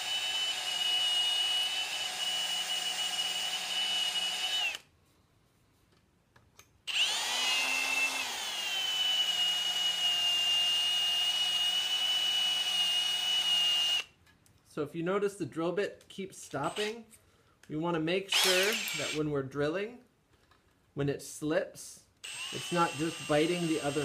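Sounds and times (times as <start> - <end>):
electric drill whining: 0.0 - 4.9, 6.9 - 14.1, 16.6 - 17.0, 18.3 - 19.2, 22.2 - 24.0.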